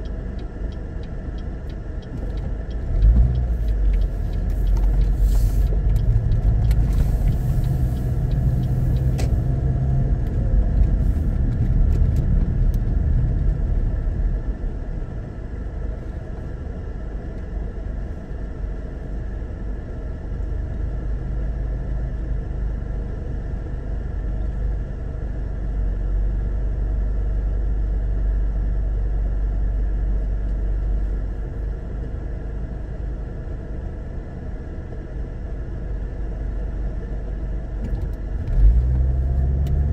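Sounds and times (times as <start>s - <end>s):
car engine idling: 0.0s - 11.5s
car cabin rumble: 0.0s - 20.5s.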